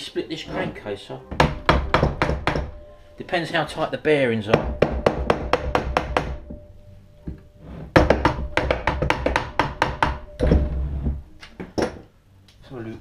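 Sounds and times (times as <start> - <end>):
mallet tapping on metal: 1.3 - 2.8, 4.5 - 6.7, 8.0 - 10.7.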